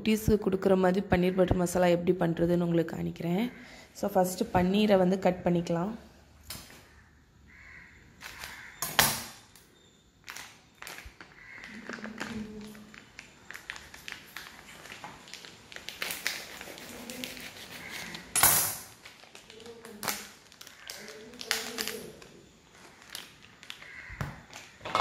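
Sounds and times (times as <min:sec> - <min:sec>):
plastic packet crinkling: 0:10.2 - 0:24.8.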